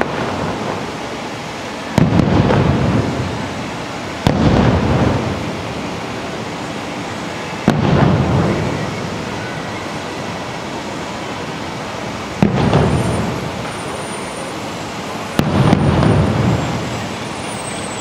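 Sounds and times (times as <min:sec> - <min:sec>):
distant firework booms: 0:02.0 - 0:03.3, 0:04.2 - 0:05.4, 0:07.6 - 0:09.1, 0:12.4 - 0:13.6, 0:15.4 - 0:16.8.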